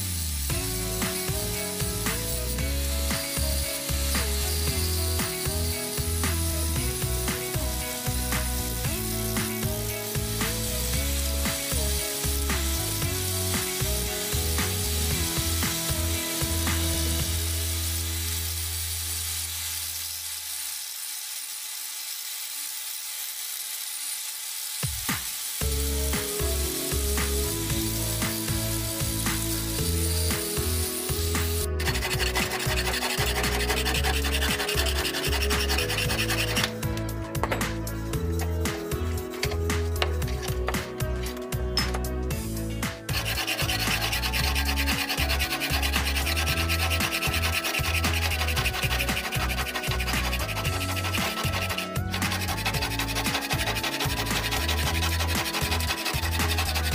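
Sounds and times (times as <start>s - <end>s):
background music with beat: 0.0s - 18.1s, 24.8s - 56.9s
angle grinder grinding steel: 0.0s - 56.9s
file rasping on steel: 27.9s - 36.9s, 42.9s - 56.9s.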